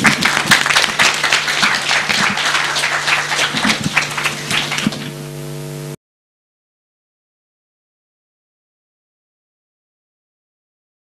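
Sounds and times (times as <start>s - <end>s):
audience applauding: 0.0s - 5.2s
low hum: 0.0s - 6.0s.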